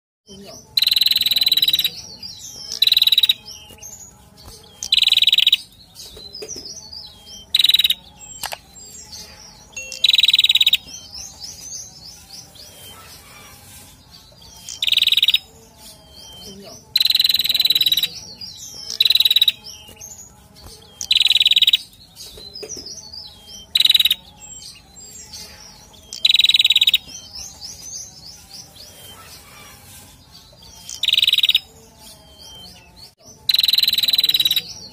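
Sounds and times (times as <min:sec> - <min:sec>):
bird song bursts of high notes: 0:00.3 - 0:34.9
soft bird chirping: 0:00.3 - 0:34.9.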